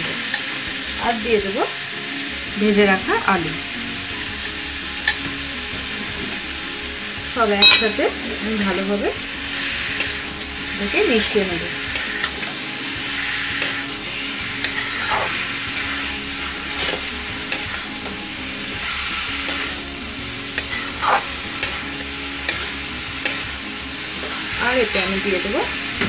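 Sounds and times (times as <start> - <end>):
hot oil sizzling: 0.0 - 26.0
metal spatula scraping a pan: 9.5 - 19.8, 20.4 - 25.6.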